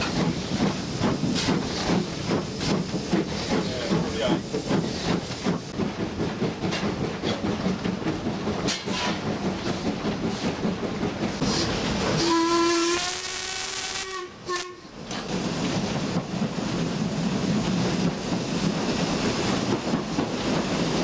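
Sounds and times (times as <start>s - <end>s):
steam locomotive running: 0.0s - 21.0s
steam whistle: 12.2s - 14.9s.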